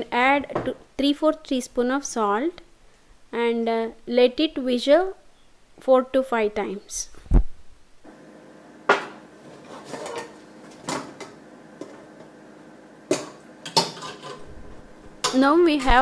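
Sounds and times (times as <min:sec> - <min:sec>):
metal pots clanking: 0:08.9 - 0:12.2, 0:13.1 - 0:14.5
lid knocking and scraping: 0:08.9 - 0:12.3, 0:13.1 - 0:14.5.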